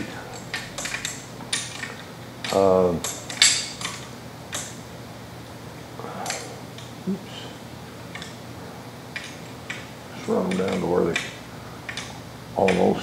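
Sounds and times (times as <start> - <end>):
wrenches clinking on metal: 0.3 - 4.7.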